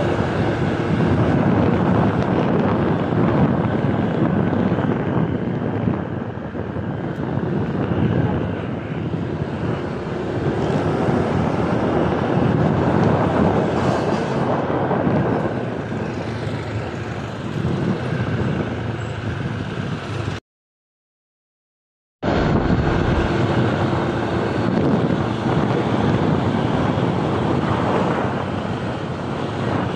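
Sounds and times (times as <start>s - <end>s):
street traffic: 0.0s - 20.4s, 22.2s - 29.9s
wind rushing over microphone: 0.0s - 20.4s, 22.2s - 29.9s
motorcycle engine: 22.2s - 29.9s.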